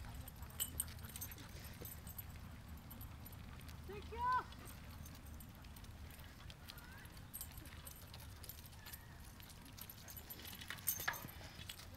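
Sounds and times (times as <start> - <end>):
bicycle rolling rumble: 4.5 - 11.9.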